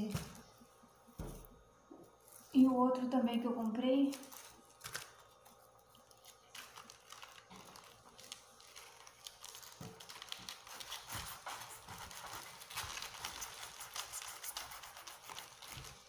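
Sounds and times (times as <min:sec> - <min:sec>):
leaves rustling and crackling: 0:04.0 - 0:11.4.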